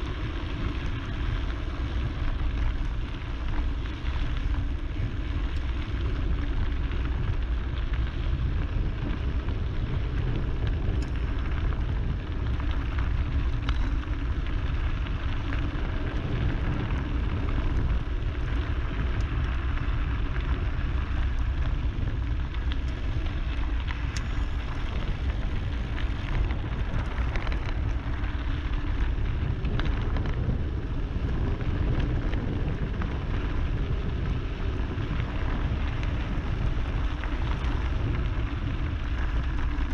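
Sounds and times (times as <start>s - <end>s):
bike tyres rolling over gravel: 0.0s - 39.9s
wind buffeting microphone: 0.0s - 39.9s
stones ticking and clicking: 10.0s - 16.3s, 17.0s - 30.8s.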